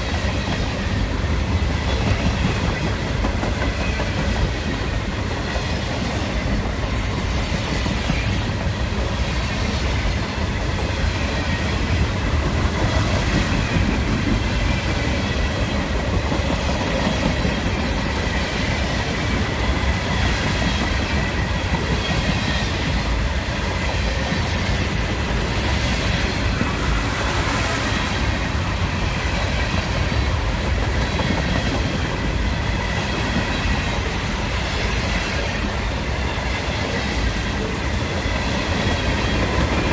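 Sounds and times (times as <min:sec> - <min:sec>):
clickety-clack over rail joints: 0:00.0 - 0:39.9
steel wheels rumbling on rail: 0:00.0 - 0:39.9.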